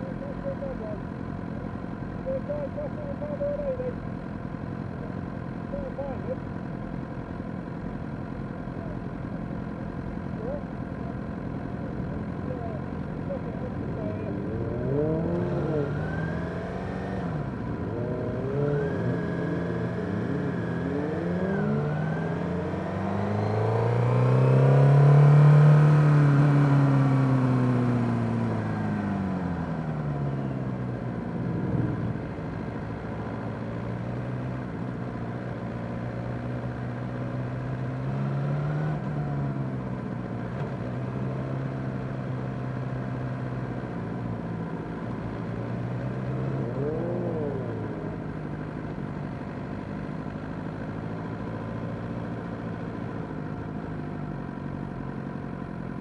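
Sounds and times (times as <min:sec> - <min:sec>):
motorcycle engines riding: 0:00.0 - 0:56.0.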